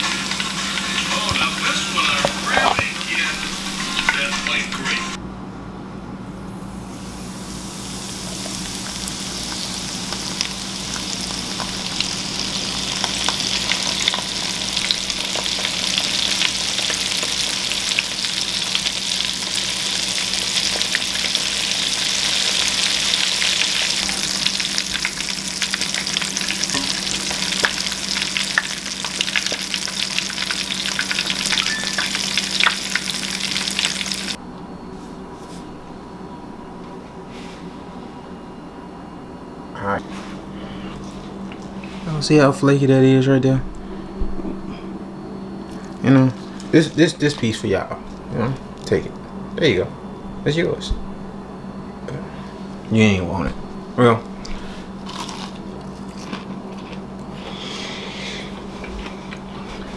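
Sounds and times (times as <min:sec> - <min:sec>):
deep-frying sizzle and crackle: 0:00.0 - 0:04.6, 0:06.8 - 0:34.4, 0:54.6 - 0:59.3.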